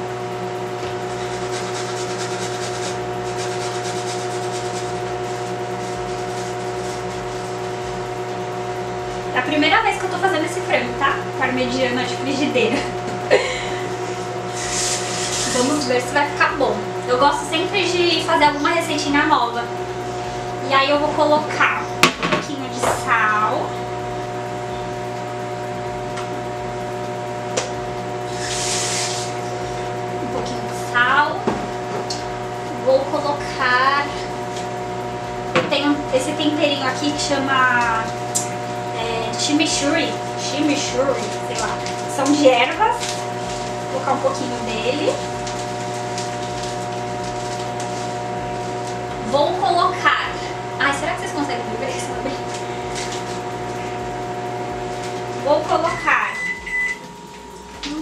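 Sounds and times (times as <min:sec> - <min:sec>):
kitchen appliance hum: 0:00.0 - 0:58.0
garlic rasping on metal grater: 0:01.2 - 0:07.6
salt sprinkling hiss: 0:01.2 - 0:07.8, 0:14.4 - 0:15.8.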